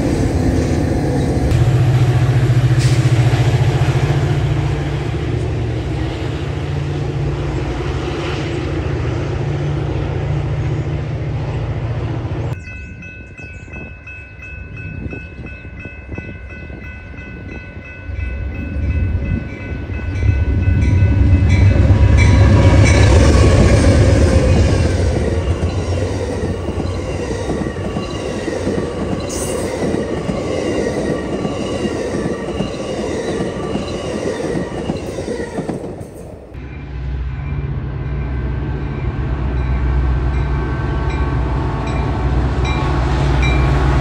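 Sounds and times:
diesel train rumbling past: 0.0 - 44.0
crossing signal ringing: 12.6 - 35.4.

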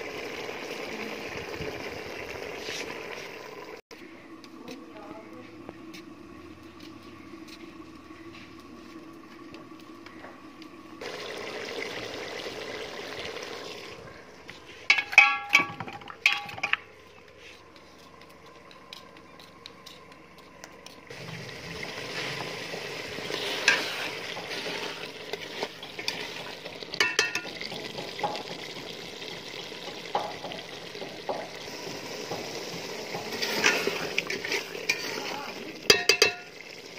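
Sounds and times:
food sizzling in pot: 0.0 - 3.8, 4.7 - 16.7, 21.0 - 36.9
spoon scraping in pot: 23.2 - 28.0, 33.3 - 36.5.

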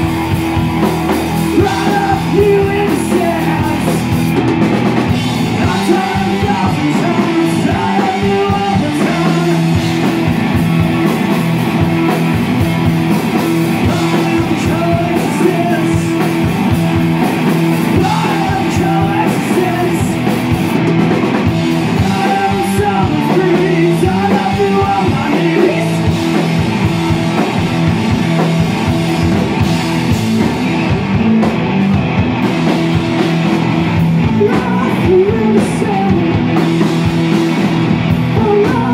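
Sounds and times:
drum kit: 0.0 - 38.9
electric guitar chords: 0.0 - 38.9
person singing: 1.4 - 4.2, 5.5 - 10.0, 13.8 - 16.4, 17.9 - 20.3, 21.8 - 27.4, 34.2 - 36.8, 38.2 - 38.9.

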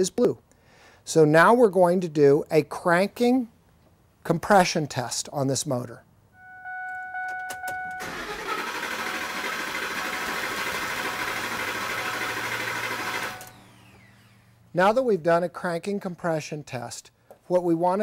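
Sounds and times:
steady electronic beep: 6.4 - 8.0
engine cranking by starter: 7.6 - 14.5.

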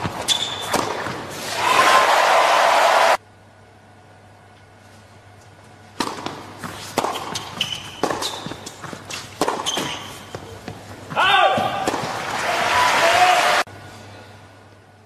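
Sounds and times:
racquets striking tennis ball: 0.0 - 1.4, 5.9 - 12.4
shoe squeaks on court: 0.2 - 0.8, 6.7 - 10.4.

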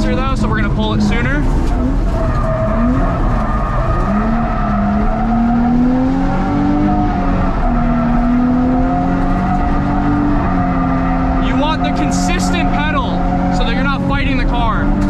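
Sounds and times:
car engine at high revs: 0.0 - 15.0
tyres squealing: 9.2 - 14.4.

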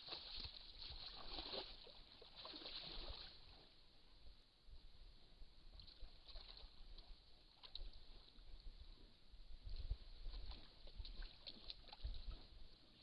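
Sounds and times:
water sloshing and splashing: 0.0 - 3.8, 5.7 - 8.7, 9.6 - 13.0.

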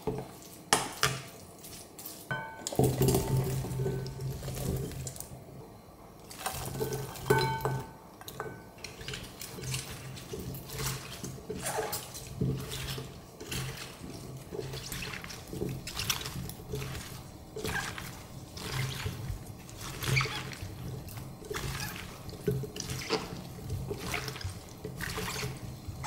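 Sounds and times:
wet squelching of tossed vegetables: 0.0 - 5.3, 8.8 - 26.0.

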